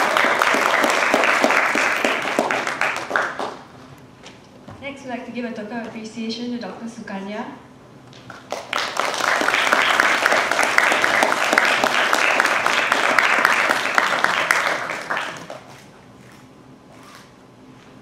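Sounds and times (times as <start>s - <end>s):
audience applauding: 0.0s - 3.7s, 8.3s - 15.8s.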